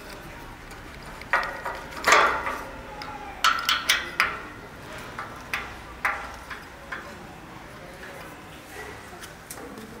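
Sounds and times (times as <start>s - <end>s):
metal gate clanking: 1.3s - 2.8s.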